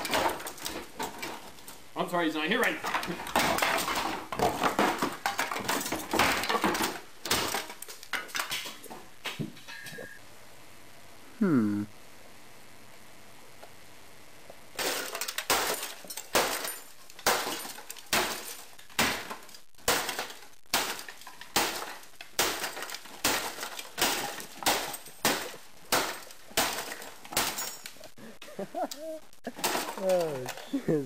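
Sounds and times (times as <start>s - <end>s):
broken casing rattling: 0.0s - 1.8s, 2.5s - 9.2s, 14.8s - 28.2s, 29.4s - 30.9s
plastic housing being smashed: 0.0s - 1.8s, 2.6s - 9.8s, 14.7s - 28.0s, 29.5s - 30.7s.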